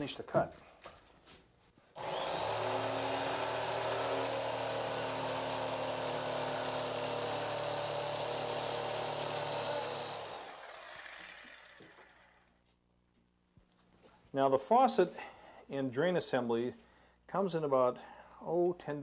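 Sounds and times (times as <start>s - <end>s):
jigsaw cutting countertop: 2.0s - 12.5s.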